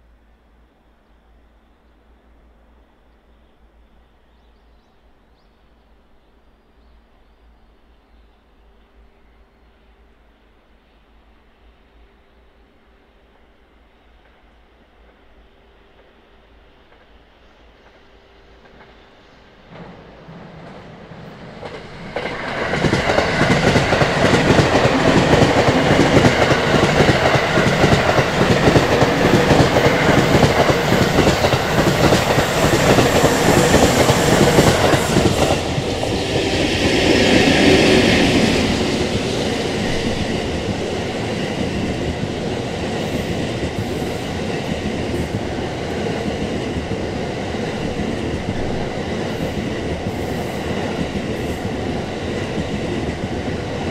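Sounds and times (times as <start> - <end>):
train rumbling past: 8.6 - 53.9
high hiss: 10.6 - 46.1, 47.0 - 53.9.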